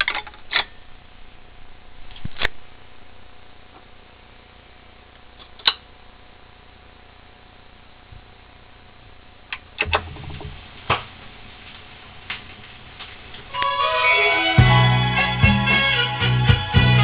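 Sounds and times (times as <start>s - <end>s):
vinyl record hiss: 0.0s - 17.0s
vinyl clicks and pops: 9.5s - 13.7s.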